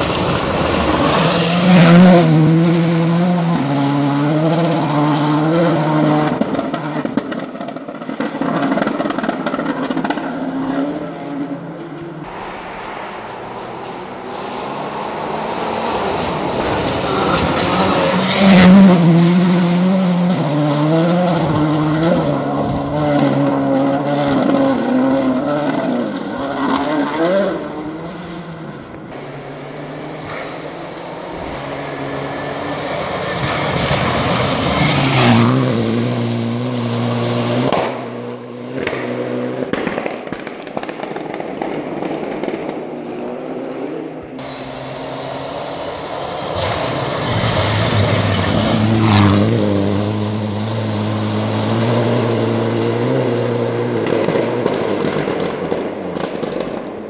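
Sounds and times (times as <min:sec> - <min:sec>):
rally cars passing at high revs: 0:00.0 - 0:57.0
exhaust cracks and pops: 0:06.3 - 0:10.4, 0:38.8 - 0:43.5, 0:54.0 - 0:57.0.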